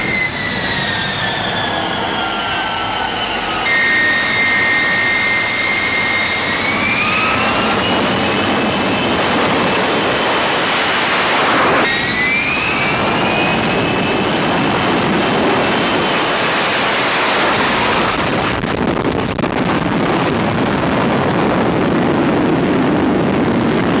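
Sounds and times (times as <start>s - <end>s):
jet engine roar with high whine: 0.0s - 24.0s.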